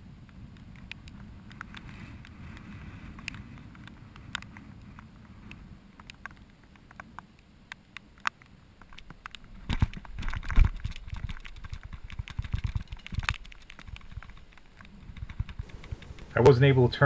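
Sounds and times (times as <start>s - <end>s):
low rumble of reel cranking: 10.0s - 17.0s.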